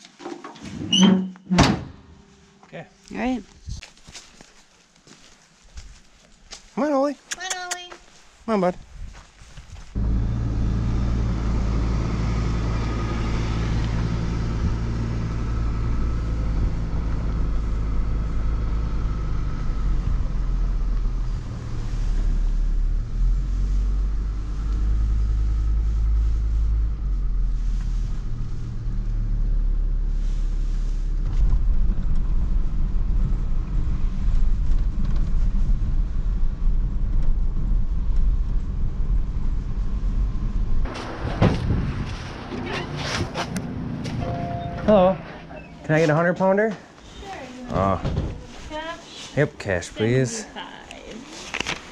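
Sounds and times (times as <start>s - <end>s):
road rumble: 1.8s - 51.9s
truck engine drone: 10.0s - 46.2s.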